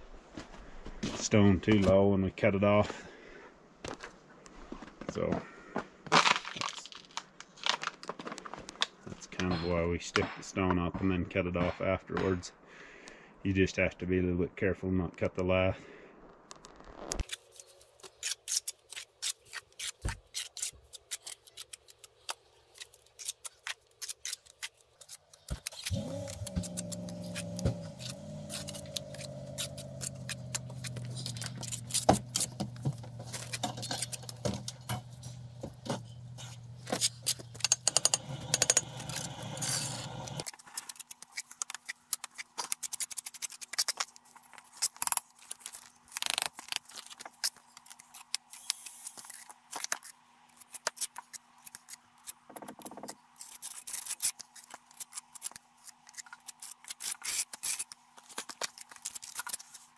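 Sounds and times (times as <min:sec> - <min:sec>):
hand tools scraping stone: 0:22.8 - 0:43.9
low steady hum: 0:25.8 - 0:40.4.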